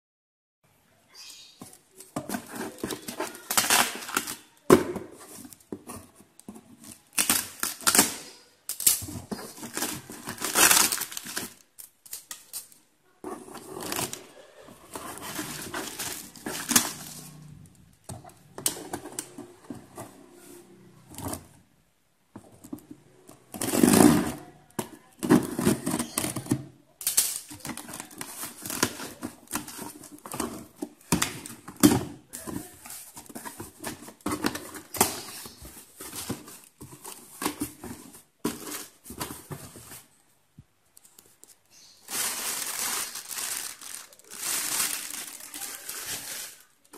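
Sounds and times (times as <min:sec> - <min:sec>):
packing tape tearing: 0:02.3 - 0:04.4, 0:07.1 - 0:12.8, 0:15.1 - 0:17.4, 0:23.6 - 0:24.4, 0:41.4 - 0:46.7
plastic wrap crinkling: 0:06.8 - 0:12.8, 0:13.4 - 0:17.9, 0:40.9 - 0:46.9.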